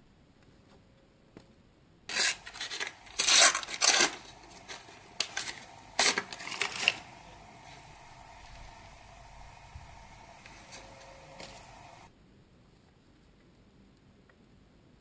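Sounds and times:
foil packet crinkling and tearing: 2.1 - 7.5
wrapper rustling and crackling: 2.1 - 8.1.

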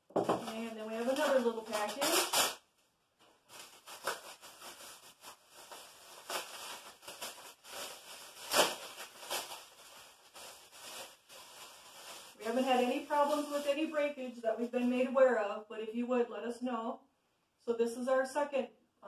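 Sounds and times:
plastic packaging crinkling: 0.1 - 2.6, 3.2 - 14.9.

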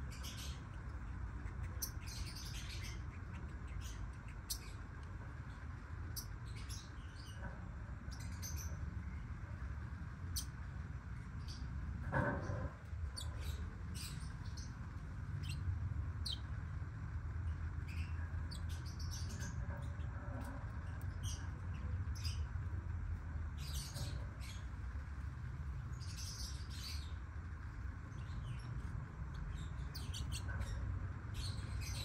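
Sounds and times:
lovebirds chirping: 0.0 - 9.3, 13.0 - 16.6, 17.4 - 22.6, 25.9 - 27.3, 28.0 - 32.0
steady low hum: 0.0 - 32.0.

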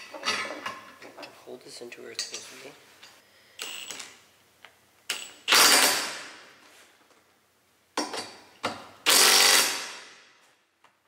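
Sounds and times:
cordless impact wrench: 5.1 - 6.4, 9.0 - 10.2.

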